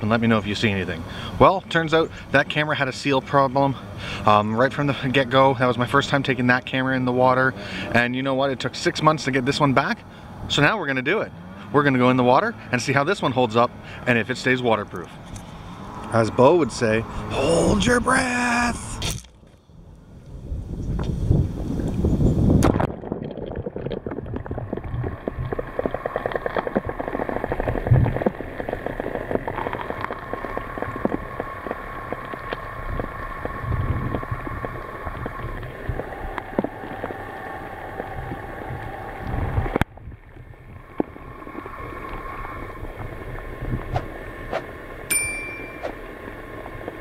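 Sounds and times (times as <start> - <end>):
faint steady hum: 0.0 - 47.0
underwater gurgling: 22.6 - 45.1.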